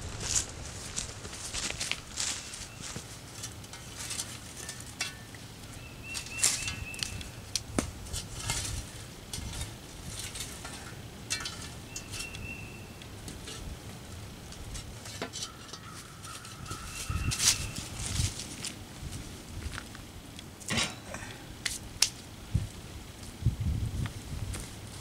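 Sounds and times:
metal spade scraping coals: 1.3 - 18.8, 20.6 - 22.1.

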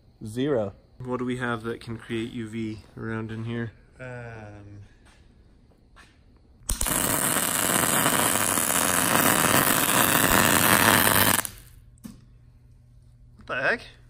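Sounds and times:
welding arc crackling: 6.7 - 11.8.

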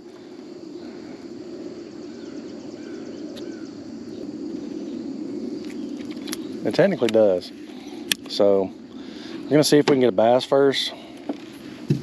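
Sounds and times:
bird calls: 0.0 - 9.6
low hum: 0.0 - 9.8
insects chirping: 0.0 - 12.0.

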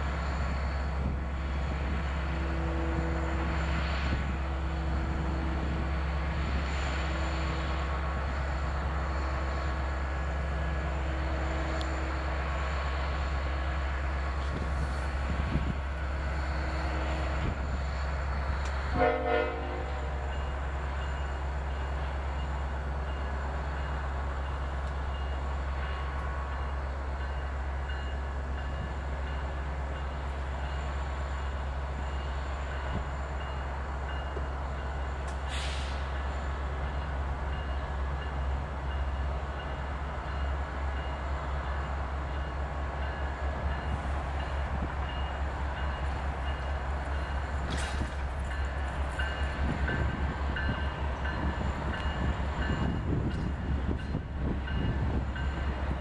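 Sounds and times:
diesel locomotive rumbling: 0.0 - 56.0
train horn blast: 2.3 - 3.6, 16.5 - 17.6, 18.8 - 20.4
brief hiss: 35.3 - 36.2.

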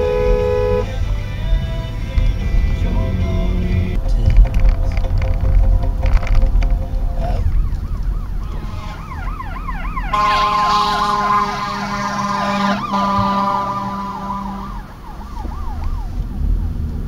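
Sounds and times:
horn blasts: 0.0 - 1.0, 8.3 - 14.9
fire engine siren yelping: 6.9 - 16.6.

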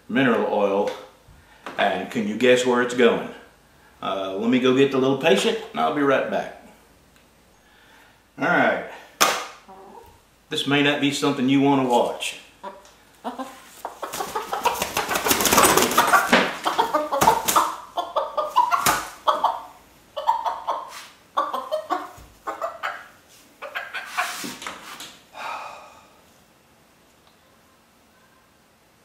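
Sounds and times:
hen squawking and clucking: 9.6 - 10.2, 12.5 - 24.6
rustling and knocking: 13.9 - 17.7.

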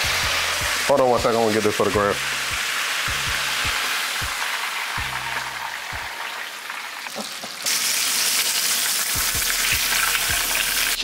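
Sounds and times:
background music with low beat: 0.0 - 6.1, 9.1 - 11.0
food sizzling in hot oil: 0.0 - 11.0.

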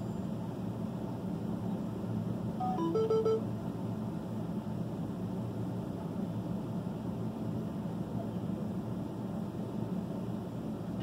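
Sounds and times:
vehicle cab hum: 2.4 - 5.3
electronic beeps: 2.6 - 3.4.

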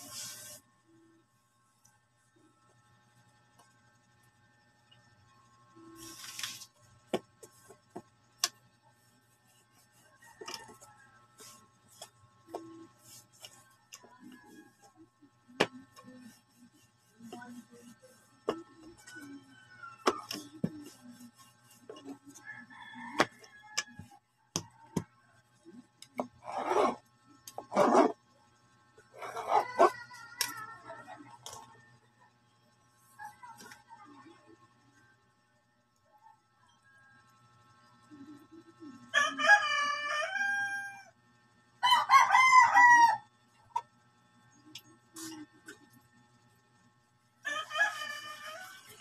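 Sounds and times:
bowl scraping through dough: 26.2 - 28.2, 29.1 - 30.0
rooster crowing: 39.1 - 41.1, 41.8 - 43.3, 47.4 - 49.0.

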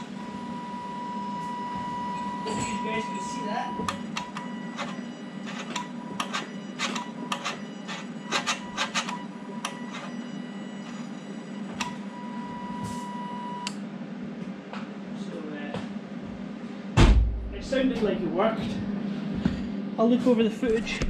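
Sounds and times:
steady high tone: 0.0 - 5.3
steady low hum: 0.0 - 21.0.

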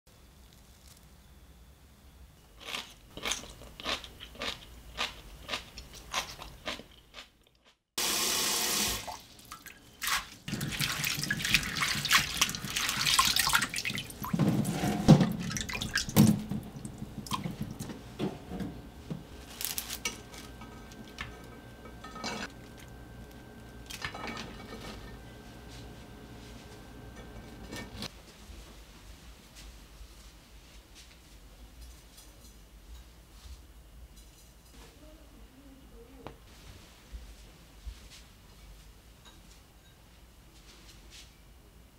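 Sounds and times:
water splashing in a bowl: 8.8 - 14.4, 15.2 - 17.8
wet sprouts rustling: 19.4 - 20.6.

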